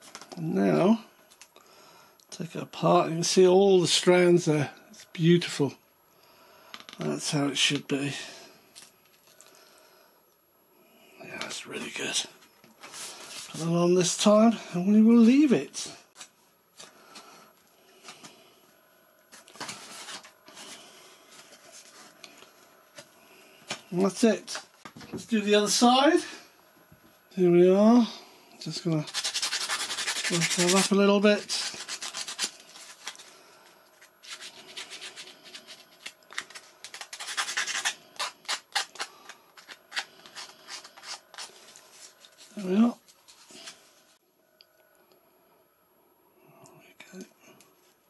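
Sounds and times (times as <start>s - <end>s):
metal file rasping on foam: 29.0s - 32.6s.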